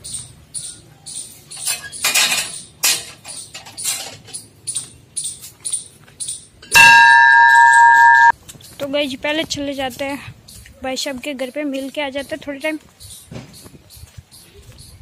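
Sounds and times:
metal gate clanking open: 0:01.6 - 0:04.5, 0:06.6 - 0:08.3
large bell ringing: 0:06.7 - 0:08.3.

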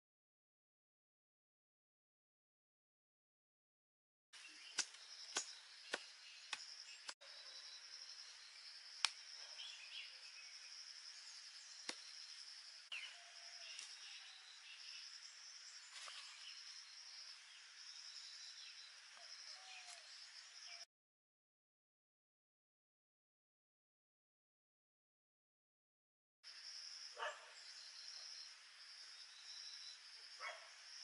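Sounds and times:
insects chirring: 0:04.4 - 0:20.8, 0:26.5 - 0:31.0
rustling of soil and grass: 0:11.2 - 0:14.9, 0:15.7 - 0:17.0.

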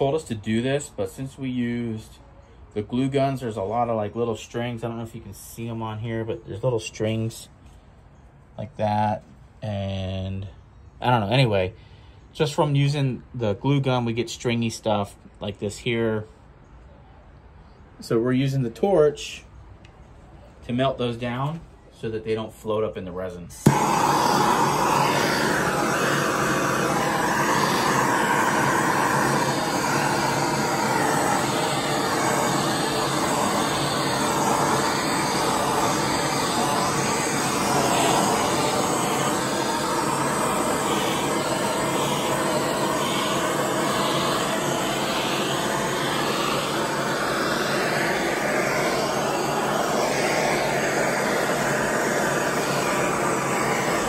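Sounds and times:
gas torch flame hissing: 0:23.6 - 0:54.0.

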